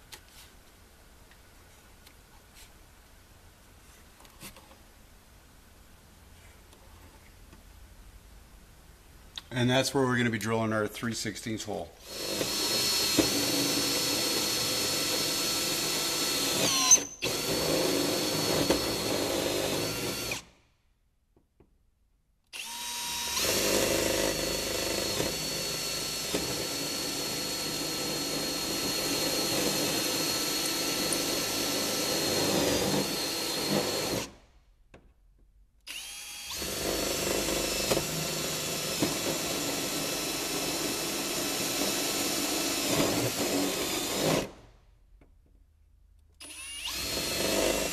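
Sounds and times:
cordless drill whine: 12.0 - 20.5, 22.6 - 34.3, 35.9 - 44.5, 46.4 - 47.9.

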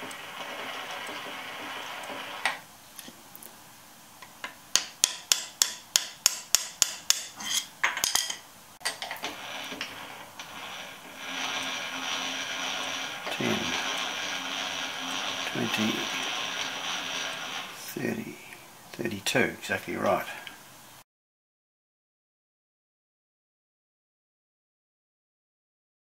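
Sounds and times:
machine hum: 0.0 - 2.7, 8.8 - 21.0
hammer tapping steel: 4.8 - 7.4.

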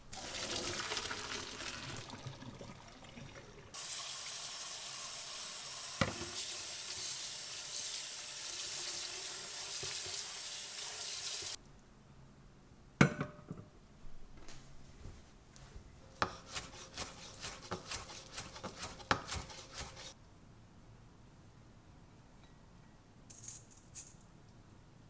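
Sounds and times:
cooking hiss: 3.7 - 11.6.

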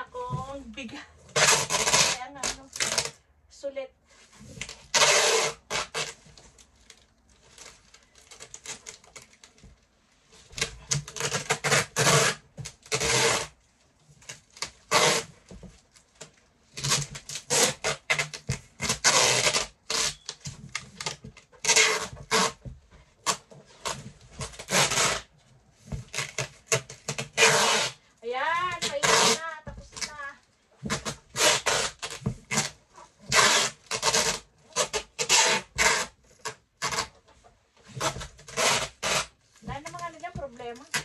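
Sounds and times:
packing tape ripping off roll: 1.3 - 3.2, 4.4 - 9.7, 10.4 - 37.2, 37.8 - 41.0
tape rubbed onto cardboard box: 1.3 - 3.2, 4.2 - 6.5, 10.3 - 13.6, 14.2 - 15.6, 16.2 - 39.8.

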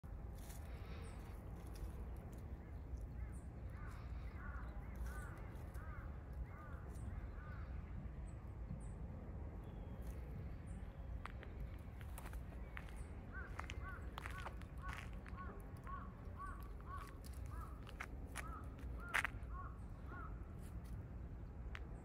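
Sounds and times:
bird calling: 2.6 - 7.8, 12.2 - 20.4.

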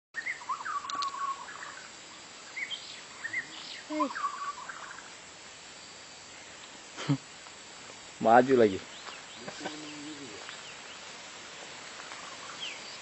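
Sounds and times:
bird singing whistled notes: 0.2 - 5.1.

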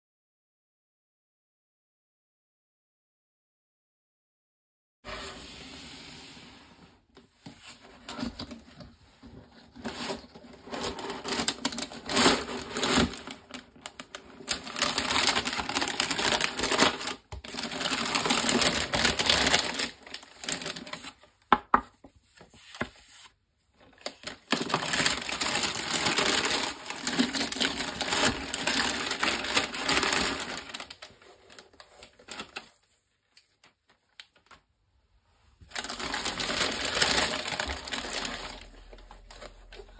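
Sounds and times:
tissue paper crinkling: 9.3 - 21.3, 24.0 - 33.7, 35.7 - 39.9.

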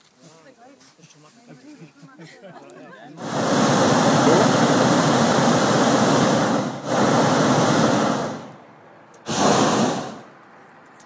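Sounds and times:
propane burner blasts: 3.2 - 10.4.

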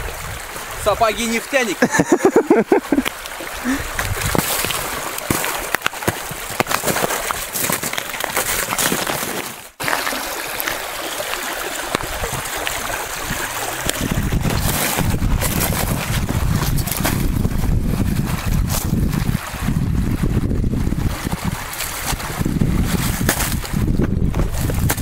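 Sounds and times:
stream rushing and trickling: 0.0 - 25.0
boots splashing through water: 1.8 - 19.7, 21.0 - 25.0
wind rumble on microphone: 3.8 - 4.5, 12.0 - 25.0.

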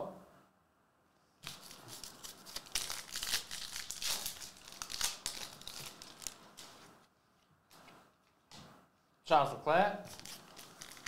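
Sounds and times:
foil wrapper crinkling and tearing: 1.4 - 6.8, 10.1 - 11.0.

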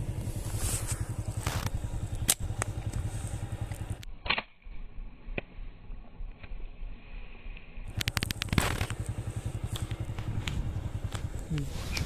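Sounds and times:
engine idling: 0.0 - 4.0, 7.8 - 12.0
rustling burst: 7.9 - 9.6.

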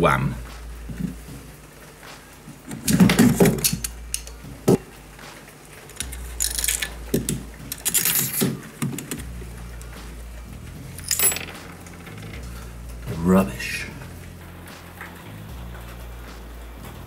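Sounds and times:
metal clattering and scraping: 5.8 - 13.0.

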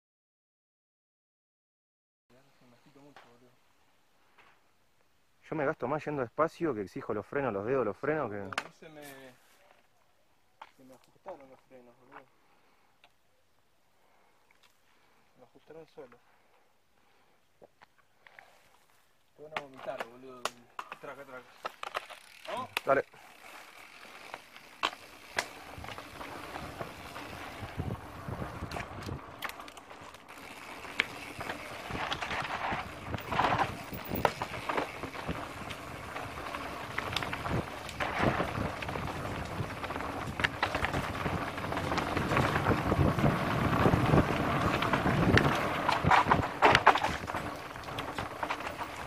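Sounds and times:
bike rattling and knocking: 19.5 - 49.0
bike tyres rumbling over dirt: 20.9 - 49.0
wind on microphone: 26.6 - 29.3, 36.9 - 47.5.

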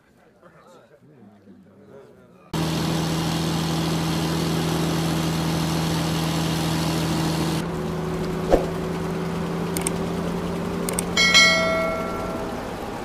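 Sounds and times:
motorboat engine hum: 2.6 - 13.0
sharp knock: 8.5 - 8.8
faint clicks: 9.8 - 10.0, 10.9 - 11.2.

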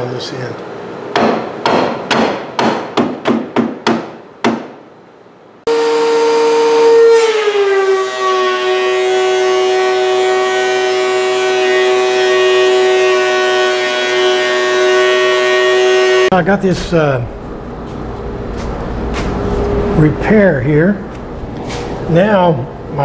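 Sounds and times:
thickness planer whining: 5.7 - 16.3.

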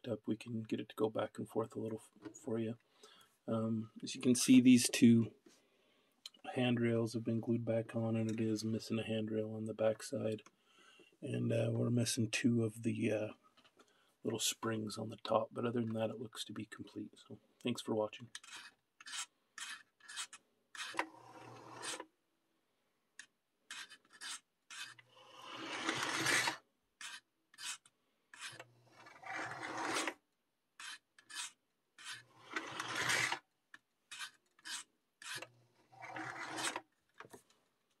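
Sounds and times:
model train motor whirring: 18.4 - 22.0, 23.7 - 30.2, 30.8 - 33.4, 34.1 - 36.8.

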